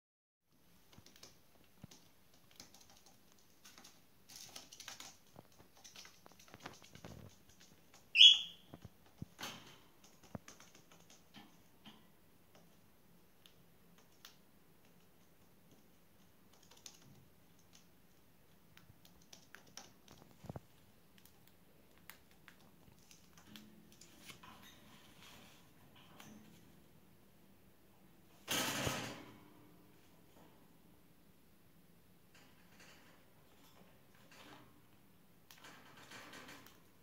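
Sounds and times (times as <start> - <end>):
claws and beak tapping: 0.7 - 24.1
cockatiel chirp: 8.2 - 8.7.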